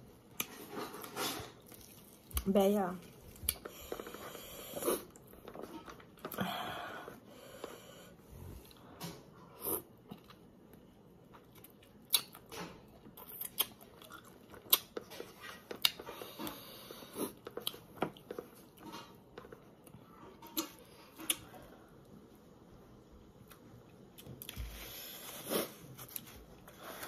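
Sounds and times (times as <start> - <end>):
person chewing crisp fruit: 0.2 - 6.4, 9.5 - 21.8, 24.2 - 27.0.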